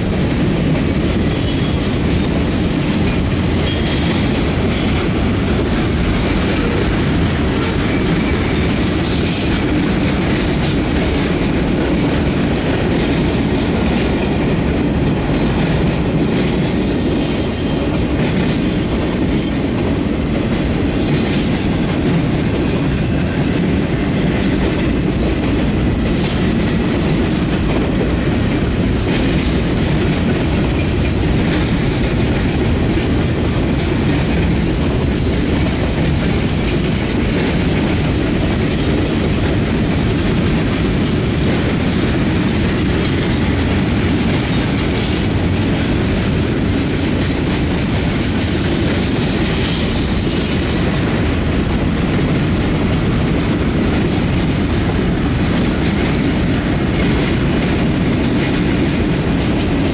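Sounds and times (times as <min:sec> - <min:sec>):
clickety-clack over rail joints: 0:00.0 - 0:59.9
train wheels rumbling on rail: 0:00.0 - 0:59.9
high wheel squeals: 0:01.2 - 0:02.6, 0:16.4 - 0:18.0, 0:18.6 - 0:20.1, 0:41.0 - 0:41.6.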